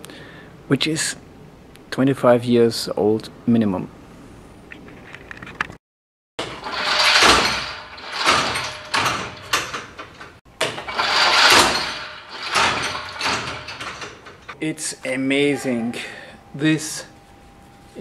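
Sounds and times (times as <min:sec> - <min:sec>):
rope rasping through a pulley: 0:10.8 - 0:14.6.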